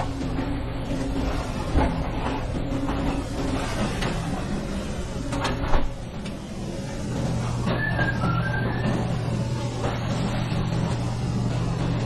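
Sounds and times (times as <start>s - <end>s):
kitchen hum and rush: 0.0s - 12.0s.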